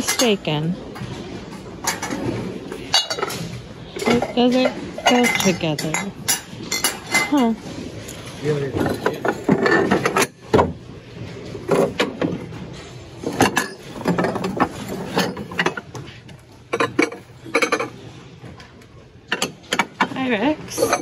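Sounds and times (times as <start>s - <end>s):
glass dishes clinking: 0.0s - 0.4s, 2.8s - 7.6s, 13.3s - 15.9s, 16.7s - 18.0s, 19.3s - 21.0s.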